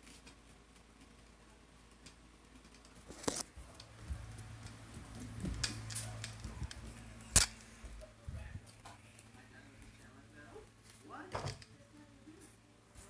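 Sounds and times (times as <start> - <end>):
low rumble: 3.6 - 8.8.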